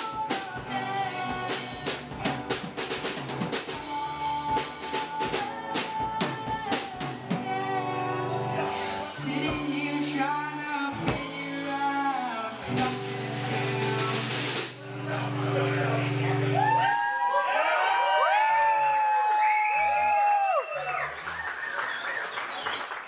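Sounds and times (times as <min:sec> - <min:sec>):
person singing: 0:00.0 - 0:02.6, 0:03.7 - 0:17.1
drum kit hits: 0:00.0 - 0:07.5, 0:09.2 - 0:14.8
acoustic guitar: 0:00.0 - 0:16.8
keyboard: 0:00.0 - 0:16.8.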